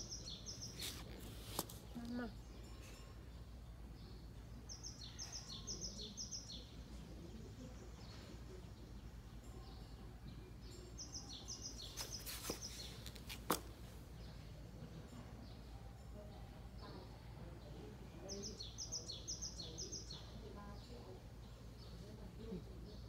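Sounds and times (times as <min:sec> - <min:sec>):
bird chirping: 0:00.0 - 0:03.0, 0:03.9 - 0:13.2.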